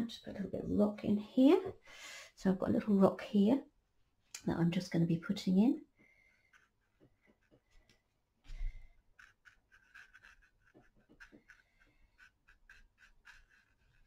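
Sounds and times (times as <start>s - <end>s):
paintbrush dabbing on paper: 6.2s - 7.9s, 9.0s - 14.0s.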